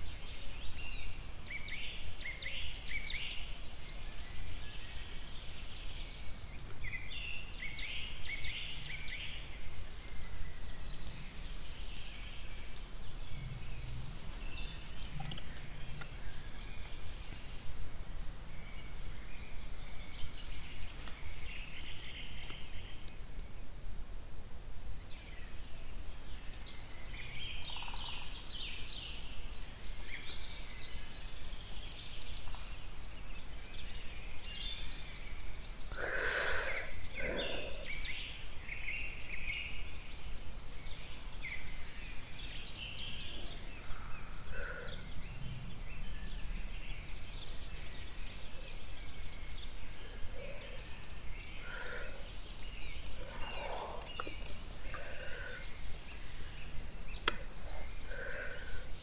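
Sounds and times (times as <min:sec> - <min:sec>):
steady background hiss: 0:00.0 - 0:59.0
faint bird chirps: 0:25.0 - 0:59.0
loud bird call: 0:35.9 - 0:38.0.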